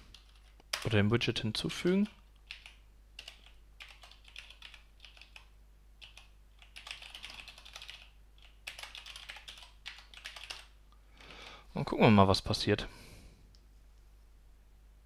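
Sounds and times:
typing on keyboard: 0:00.1 - 0:01.0, 0:01.8 - 0:10.8.

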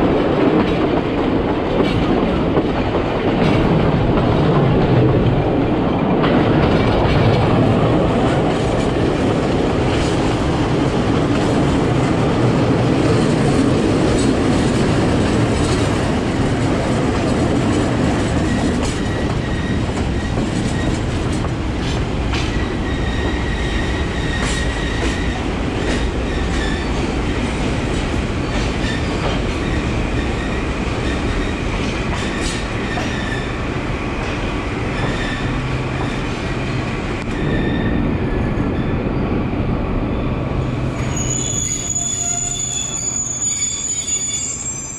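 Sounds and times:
train rumbling on rails: 0:00.0 - 0:44.9
faint high squeal: 0:41.0 - 0:44.9.

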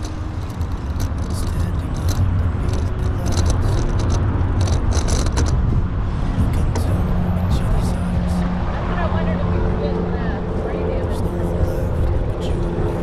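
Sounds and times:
bike rattles and scrapes: 0:00.0 - 0:06.0
wind and road noise: 0:00.0 - 0:13.0.

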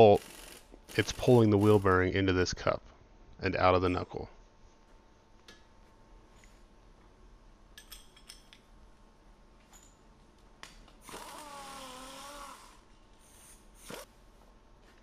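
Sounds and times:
pneumatic impact wrench whine: 0:00.0 - 0:01.9, 0:11.0 - 0:14.1.

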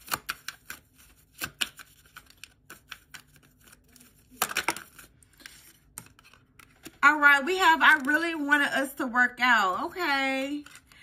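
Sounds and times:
cards being shuffled: 0:00.0 - 0:07.0, 0:10.5 - 0:11.0.

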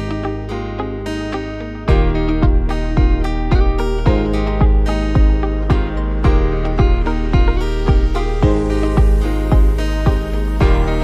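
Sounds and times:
plucked guitar notes: 0:00.0 - 0:11.0
kick drum beat: 0:01.9 - 0:11.0.

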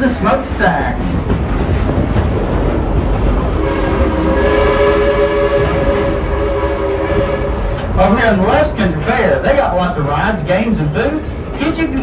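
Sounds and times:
moving train rumble: 0:00.0 - 0:12.0
steam whistle chord: 0:03.5 - 0:08.0.

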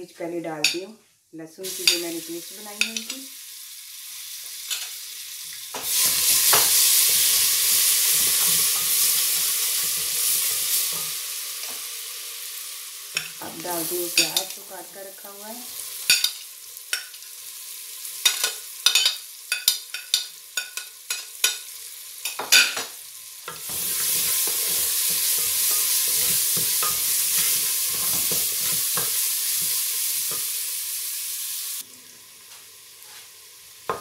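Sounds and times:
onions sizzling in oil: 0:01.6 - 0:34.0
spoon clicking on metal pan: 0:18.2 - 0:21.6.

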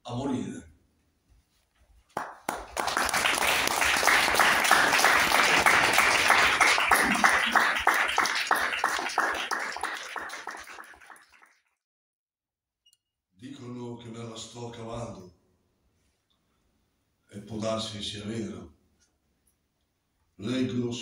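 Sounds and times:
audience applauding: 0:02.1 - 0:11.6.

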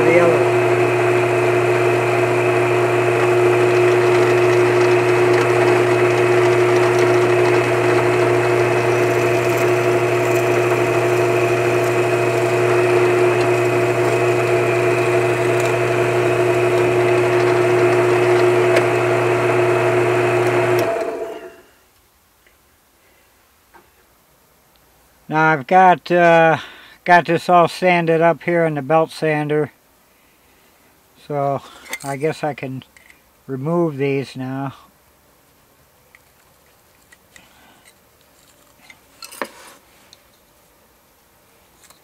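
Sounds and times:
drill press boring into wood: 0:00.0 - 0:21.6.

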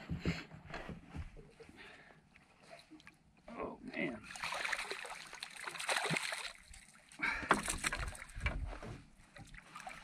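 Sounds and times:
water splashing against boat: 0:04.1 - 0:10.0.

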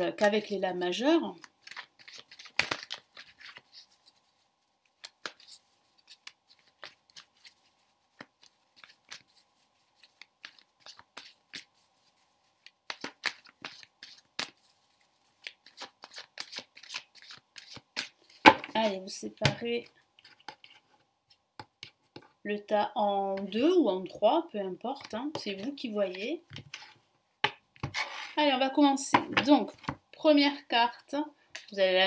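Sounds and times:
cards being shuffled: 0:01.4 - 0:19.0.

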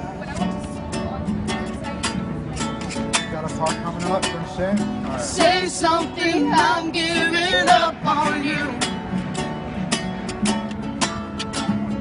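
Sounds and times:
strummed acoustic guitar: 0:00.0 - 0:12.0
person singing: 0:05.3 - 0:08.9.

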